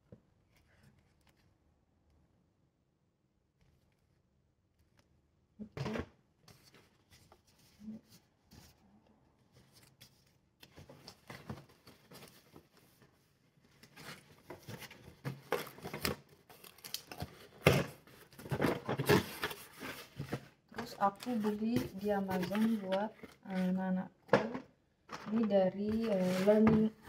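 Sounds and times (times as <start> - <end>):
cardboard and tape tearing: 13.9 - 20.4.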